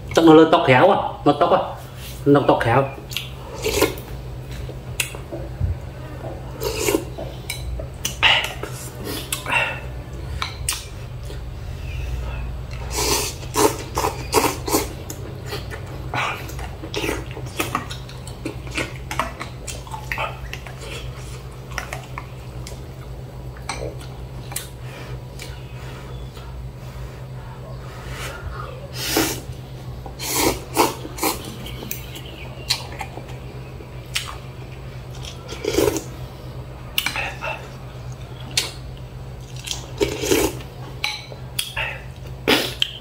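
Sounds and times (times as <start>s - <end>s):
steady low hum: 0.0s - 43.0s
person slurping noodle soup: 6.6s - 7.1s, 12.8s - 15.7s, 30.2s - 31.4s.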